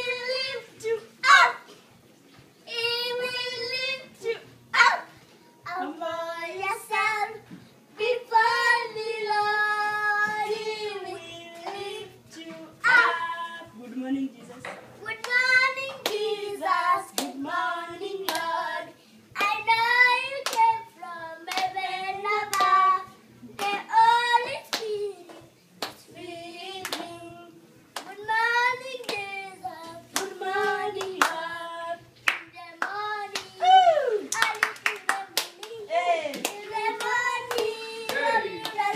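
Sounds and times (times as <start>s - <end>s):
woman and child singing: 0.0s - 1.7s, 2.7s - 7.4s, 8.0s - 13.8s, 15.0s - 25.5s, 26.1s - 38.9s
hands clapping: 15.2s - 15.4s, 16.0s - 16.2s, 17.1s - 17.4s, 18.2s - 18.5s, 19.4s - 19.6s, 20.4s - 20.7s, 21.5s - 21.8s, 22.5s - 22.8s, 23.6s - 23.8s, 24.6s - 26.0s, 26.8s - 27.1s, 27.9s - 28.2s, 29.0s - 29.3s, 30.1s - 31.4s, 32.2s - 33.6s, 34.3s - 38.9s.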